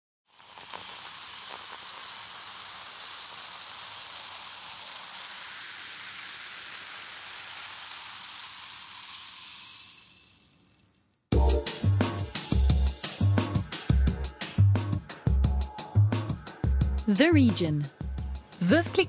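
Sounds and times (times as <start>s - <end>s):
champagne fizzing: 0.3s - 10.8s.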